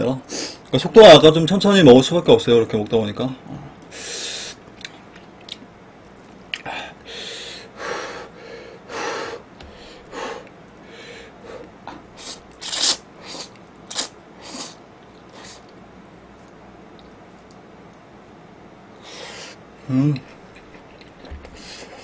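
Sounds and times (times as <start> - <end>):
chewing: 4.6 - 6.7, 20.1 - 22.0.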